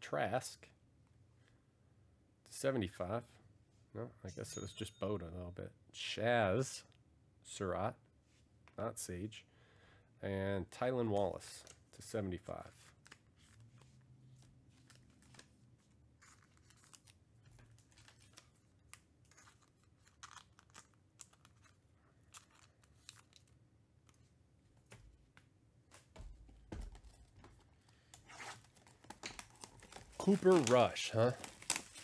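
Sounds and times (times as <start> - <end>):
trading cards and packaging rustling: 11.1 - 25.1, 25.9 - 32.0
plastic wrap crinkling: 26.9 - 32.0.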